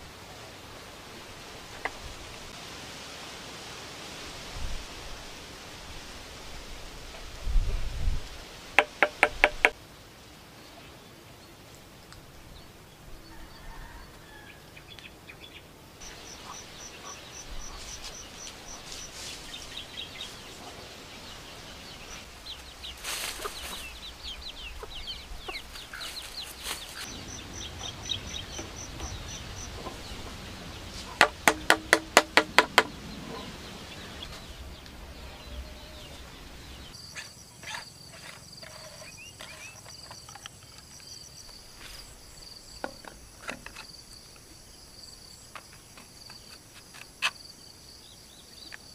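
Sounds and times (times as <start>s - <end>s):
small birds chirping: 10.5s - 48.9s
crickets trilling: 15.8s - 33.1s, 33.8s - 48.9s
chicken clucking: 23.2s - 31.3s.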